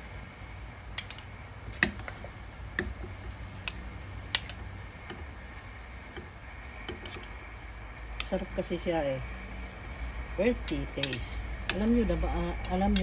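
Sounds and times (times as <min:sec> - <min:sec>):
low steady hum: 0:00.0 - 0:13.0
metal spoons clinking: 0:10.6 - 0:11.4, 0:12.4 - 0:13.0.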